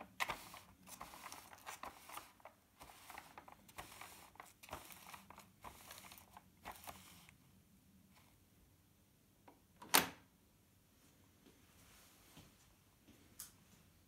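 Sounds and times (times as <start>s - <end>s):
paper roll rustling and crackling: 0.0s - 7.3s.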